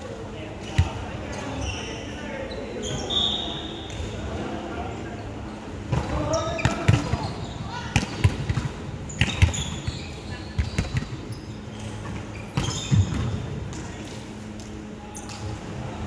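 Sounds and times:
sneakers squeaking on floor: 0.6 - 4.1, 5.9 - 13.5.

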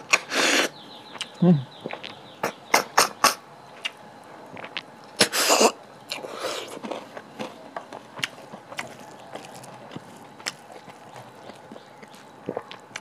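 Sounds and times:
mouth sounds: 0.1 - 3.4
slurping snails from shells: 4.6 - 13.0.

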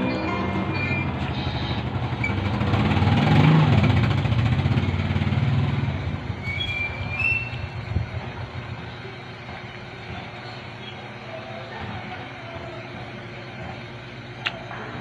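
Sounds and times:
vehicle engine passing: 0.0 - 8.9.

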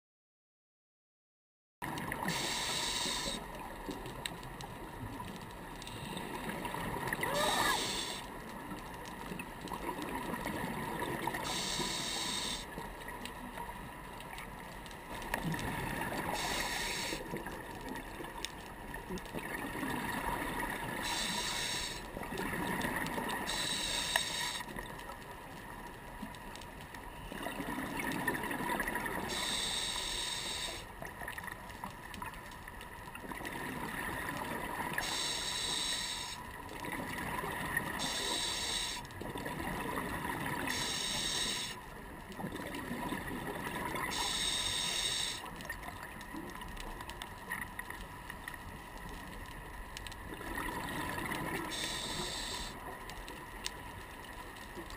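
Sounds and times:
diver inhaling through regulator: 2.2 - 3.5, 7.3 - 8.3, 11.4 - 12.7, 16.3 - 17.2, 21.0 - 22.1, 23.4 - 24.7, 29.3 - 30.9, 35.0 - 36.4, 38.0 - 39.0, 40.7 - 41.8, 44.1 - 45.5, 51.7 - 52.8
exhaled bubbles gurgling: 6.1 - 8.7, 9.3 - 12.9, 15.3 - 18.4, 19.1 - 24.6, 27.3 - 31.4, 33.2 - 46.6, 50.2 - 53.0.

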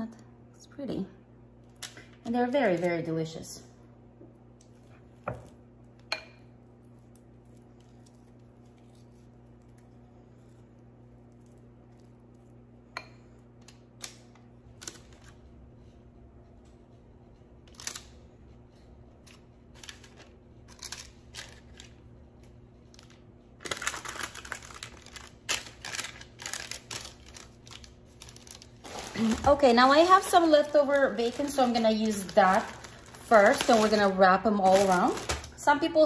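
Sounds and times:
faint steady hum: 0.0 - 36.0
dense rustling and handling noise: 23.0 - 35.7.

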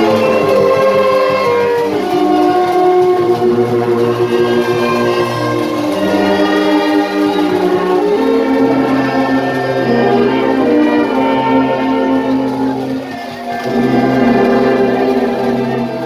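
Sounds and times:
brass band playing chords: 0.0 - 16.0.

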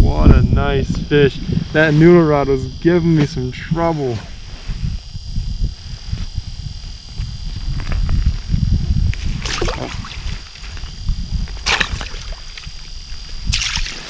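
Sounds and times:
wind rumble on microphone: 0.0 - 14.0
water splashing and sloshing: 9.4 - 10.3, 11.6 - 12.7, 13.5 - 14.0.

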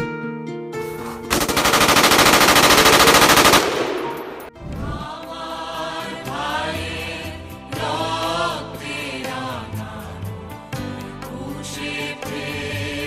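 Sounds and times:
rapid automatic gunfire: 1.3 - 4.5
voices singing slow melody: 4.6 - 13.0.

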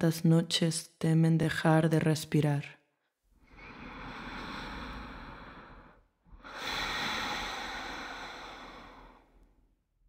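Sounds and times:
person breathing: 3.4 - 9.7.

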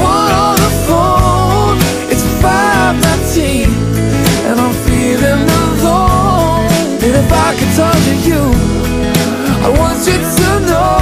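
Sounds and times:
person singing: 0.0 - 11.0
pop song: 0.0 - 11.0.

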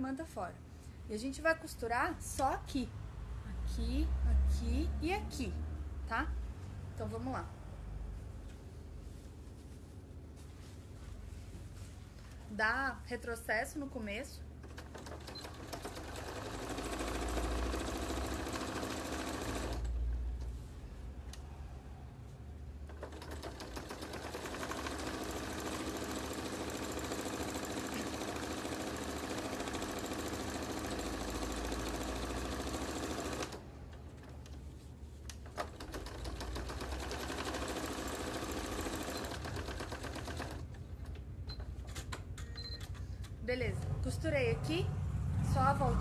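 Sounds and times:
sewing machine stitching: 14.6 - 20.0, 22.9 - 34.5, 35.4 - 40.7.

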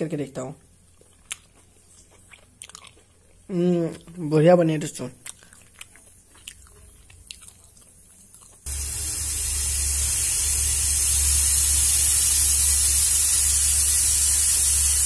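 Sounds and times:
pressure cooker hissing: 8.7 - 15.0.

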